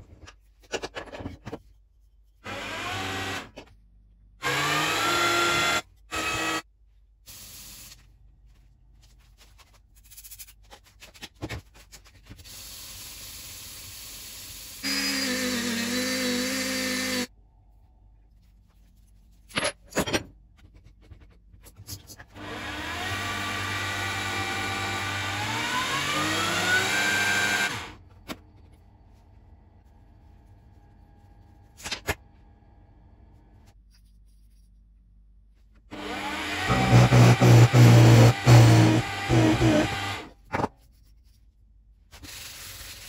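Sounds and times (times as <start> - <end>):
small power tool running: 4.4 - 6.6, 22.4 - 28.0, 35.9 - 40.3.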